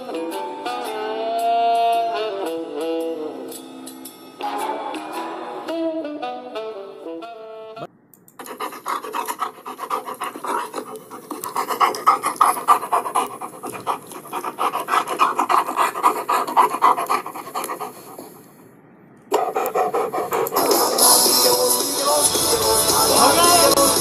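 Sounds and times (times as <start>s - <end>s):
dog panting fast: 8.4s - 18.5s, 19.3s - 21.7s.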